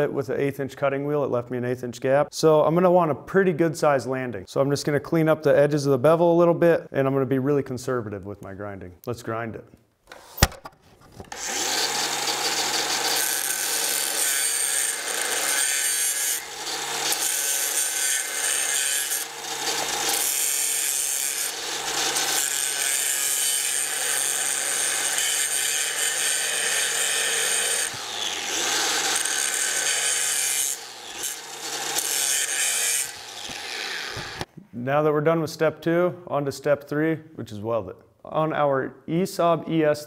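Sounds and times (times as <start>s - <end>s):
grinder motor hum: 11.3s - 20.5s, 21.3s - 23.2s, 23.8s - 34.5s
angle grinder grinding steel: 11.3s - 34.5s.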